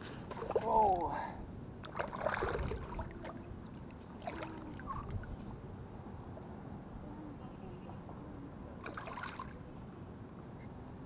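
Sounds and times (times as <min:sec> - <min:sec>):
water sloshing and splashing: 0:00.0 - 0:01.2, 0:01.8 - 0:05.4, 0:08.8 - 0:09.6.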